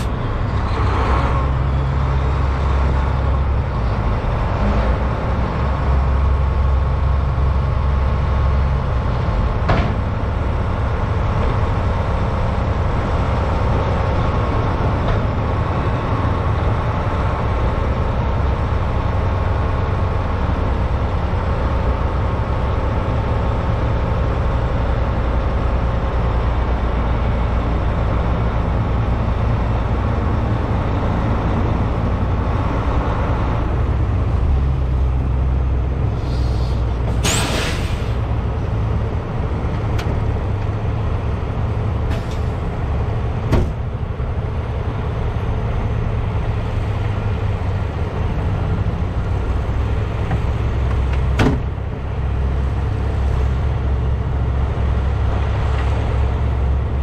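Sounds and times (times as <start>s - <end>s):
truck diesel engine running: 0.0s - 57.0s.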